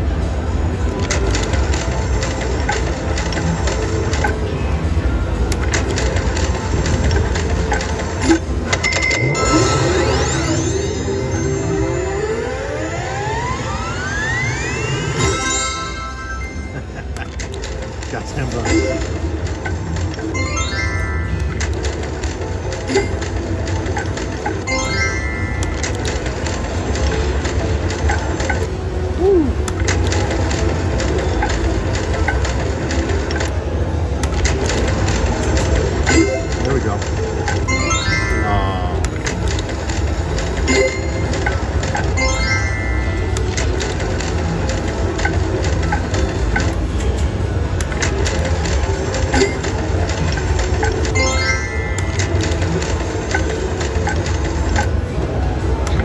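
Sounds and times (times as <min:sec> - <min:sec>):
casino hum: 0:00.0 - 0:56.0
slot machine reels clicking: 0:00.8 - 0:04.5, 0:05.4 - 0:29.0, 0:29.6 - 0:56.0
rising and falling electronic tone: 0:09.0 - 0:17.1.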